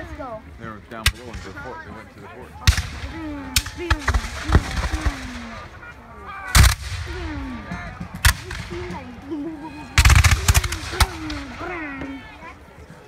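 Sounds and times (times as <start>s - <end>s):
musket shots: 2.6s - 5.8s, 6.5s - 9.1s, 10.0s - 11.6s.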